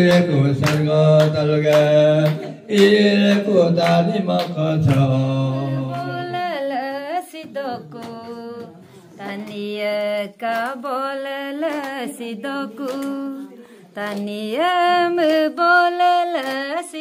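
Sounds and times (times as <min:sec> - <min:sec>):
man singing low: 0:00.0 - 0:06.4
woman singing gospel solo: 0:05.3 - 0:17.0.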